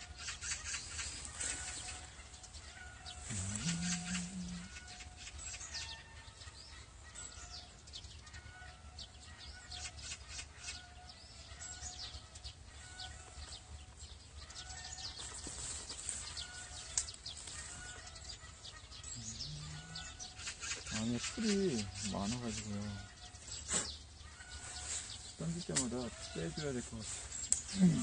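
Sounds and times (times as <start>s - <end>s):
birds chirping: 0.0s - 28.0s
short bird call: 3.2s - 5.0s.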